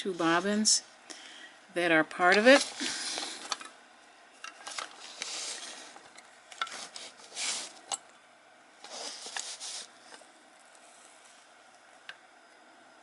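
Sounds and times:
rubbing and rustling handling noise: 0.0s - 0.8s, 2.1s - 3.7s, 4.4s - 8.0s, 8.8s - 11.6s.

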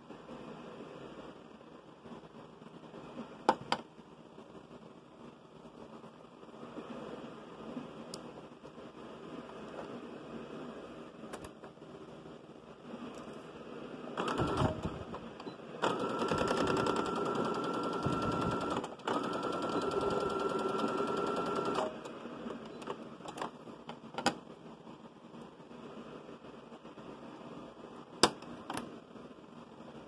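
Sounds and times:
sewing machine stitching: 14.2s - 15.1s, 15.8s - 22.0s.

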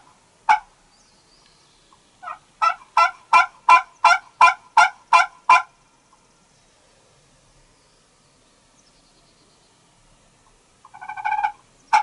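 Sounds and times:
wild turkey yelping: 0.0s - 0.7s, 2.2s - 5.8s, 10.8s - 12.0s.

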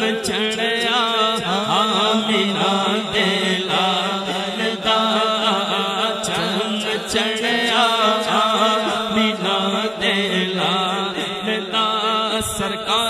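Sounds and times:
man singing: 0.0s - 13.0s.

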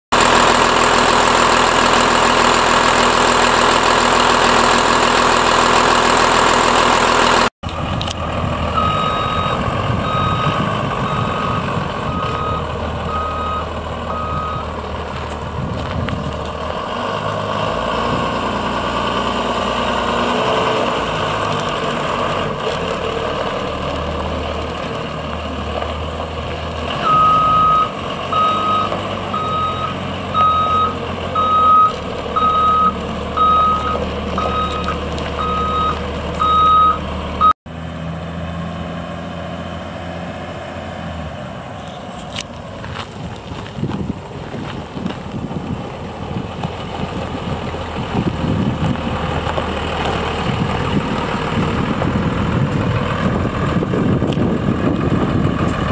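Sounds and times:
diesel engine running: 0.1s - 55.9s
backup alarm beeping: 8.8s - 14.7s, 27.1s - 37.6s.

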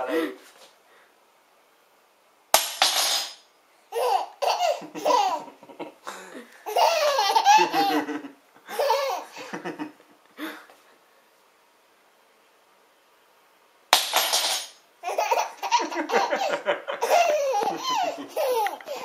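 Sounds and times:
baby laughing: 3.9s - 5.6s, 6.6s - 9.6s, 15.0s - 19.0s
sharp clatter: 13.9s - 14.8s.

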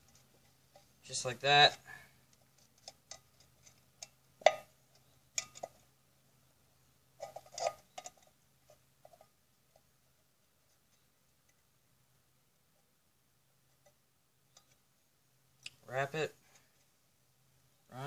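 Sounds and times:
wire clinking against metal can: 2.6s - 5.8s.

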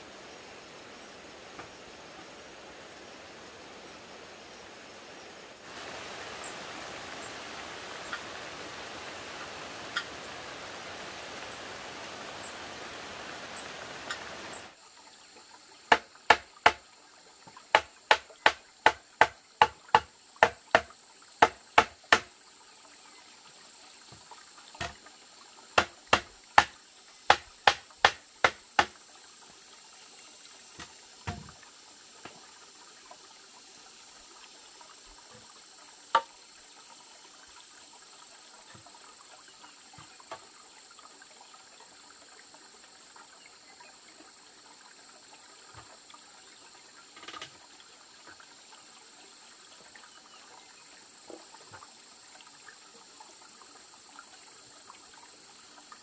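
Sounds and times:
steady rain: 0.0s - 14.8s
sharp knocks on bamboo frame: 15.9s - 16.8s, 17.7s - 22.3s, 24.8s - 25.0s, 25.8s - 29.0s, 30.8s - 31.6s, 36.1s - 36.3s.

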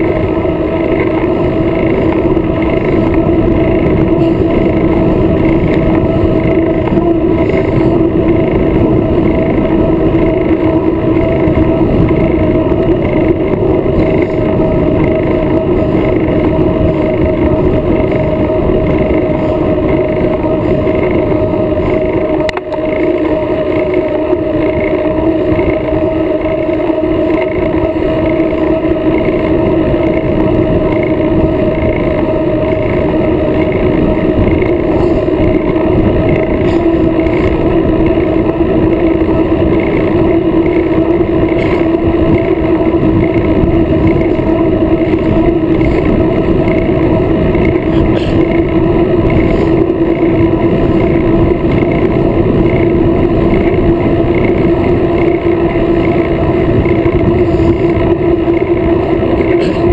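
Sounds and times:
bicycle road noise on asphalt: 0.0s - 59.9s
constant hum: 0.0s - 59.9s
wind rush: 0.0s - 59.9s.

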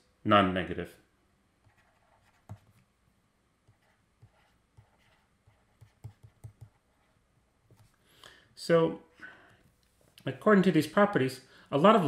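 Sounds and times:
stylus tapping on tablet screen: 5.7s - 6.8s.

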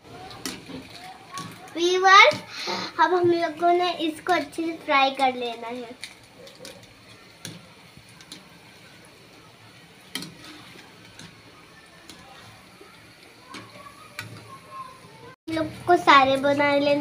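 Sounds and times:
dough frying in hot oil: 0.0s - 17.0s.

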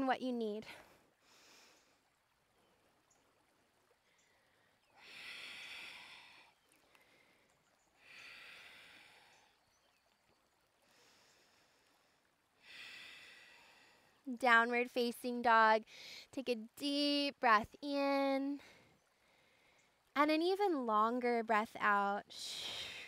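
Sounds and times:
woman breathing: 0.7s - 2.1s, 4.2s - 9.6s, 10.8s - 14.2s, 15.9s - 16.4s.

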